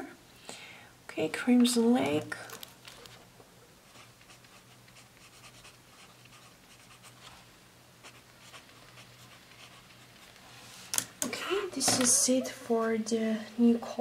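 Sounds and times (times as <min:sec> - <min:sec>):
pen scratching on paper: 0:03.8 - 0:07.3, 0:08.0 - 0:10.3.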